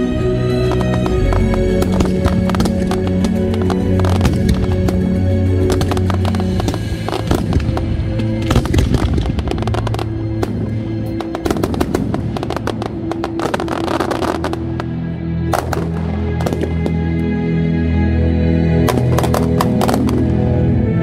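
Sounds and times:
music with long held notes: 0:00.0 - 0:21.0
firework bursts and crackling: 0:00.5 - 0:14.9, 0:18.8 - 0:20.4
firework bangs: 0:00.6 - 0:14.9, 0:15.5 - 0:17.1, 0:18.8 - 0:20.4.

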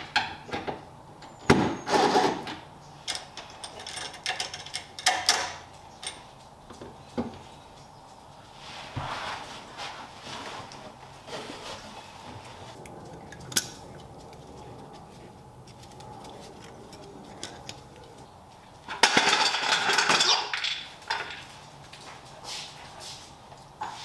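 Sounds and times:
metallic clinking and rattling: 0:03.0 - 0:06.4, 0:12.9 - 0:21.5.

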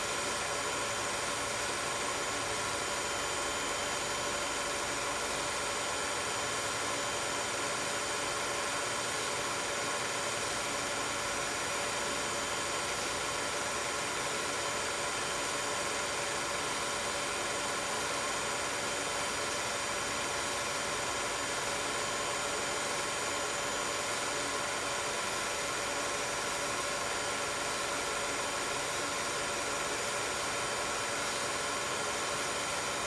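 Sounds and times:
film projector whirring: 0:00.0 - 0:33.0.

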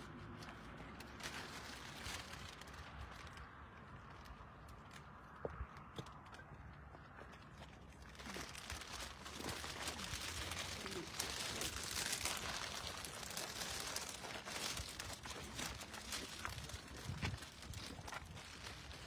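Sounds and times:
cellophane crinkling: 0:00.5 - 0:04.1, 0:08.0 - 0:19.0.

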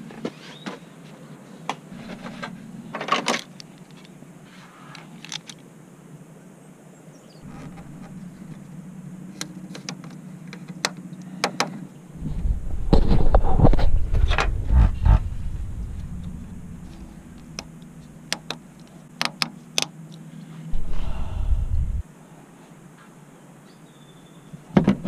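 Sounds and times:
loud low rumble: 0:01.9 - 0:03.1, 0:07.4 - 0:09.4, 0:12.0 - 0:18.8, 0:20.7 - 0:22.0.

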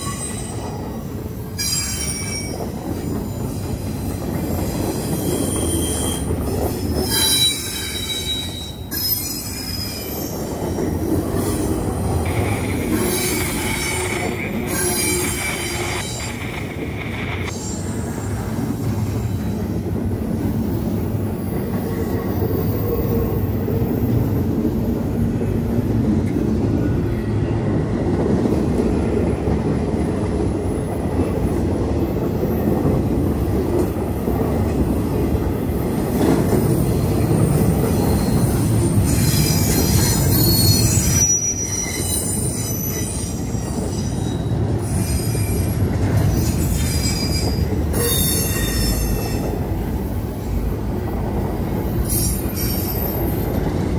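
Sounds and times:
train wheels rumbling on rails: 0:00.0 - 0:53.9
high-pitched wheel squeal: 0:07.0 - 0:10.4, 0:39.1 - 0:45.8, 0:46.4 - 0:49.4.

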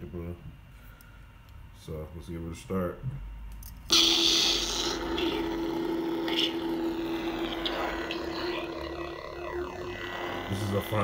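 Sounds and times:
lightsaber hum: 0:03.9 - 0:11.0.

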